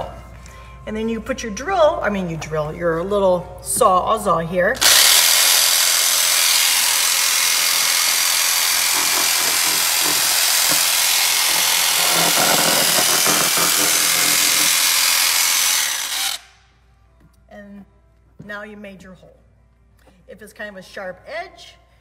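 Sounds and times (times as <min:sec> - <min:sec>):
electric jigsaw cutting: 0:04.8 - 0:16.5.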